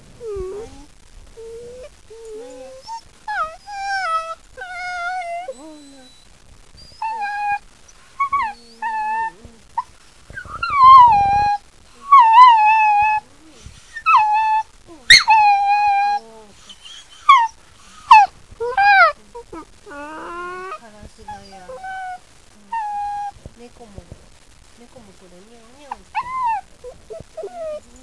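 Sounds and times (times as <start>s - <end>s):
puppy whining: 0.0s - 23.4s, 25.7s - 28.0s.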